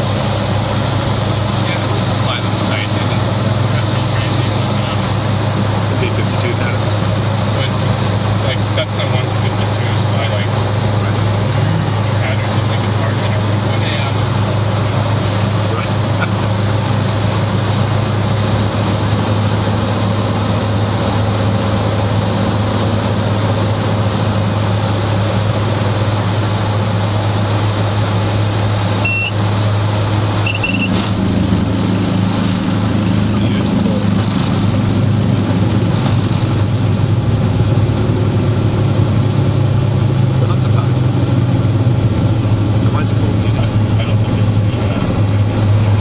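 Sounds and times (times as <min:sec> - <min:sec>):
aircraft engine and propeller droning: 0:00.0 - 0:46.0
short high beeps: 0:29.0 - 0:29.4, 0:30.4 - 0:31.0.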